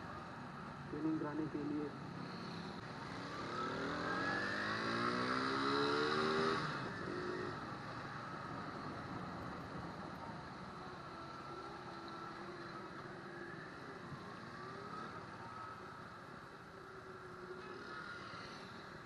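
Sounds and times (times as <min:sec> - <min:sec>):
road and wind noise: 0:00.0 - 0:19.0
motorcycle engine accelerating: 0:02.4 - 0:08.0.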